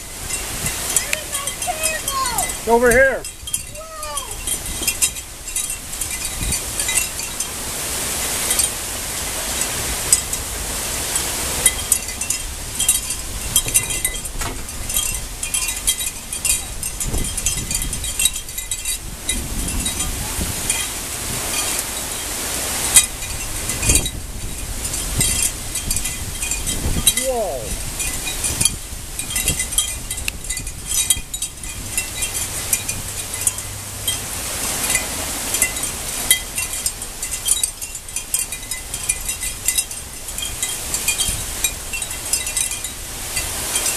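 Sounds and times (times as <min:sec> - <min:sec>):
light high-pitched clinks: 0:00.0 - 0:07.6, 0:11.1 - 0:22.2, 0:22.9 - 0:43.9
heavy rain pouring: 0:00.0 - 0:43.9
wind: 0:00.0 - 0:43.9
light metallic clinks: 0:28.0 - 0:43.9.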